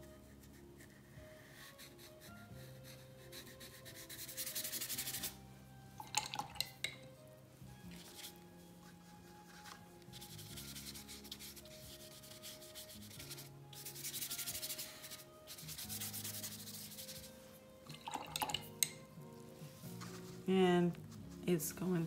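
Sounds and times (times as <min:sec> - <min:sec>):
soft background music: 0:00.0 - 0:22.0
paintbrush scrubbing on paper: 0:00.2 - 0:05.4, 0:08.0 - 0:17.6.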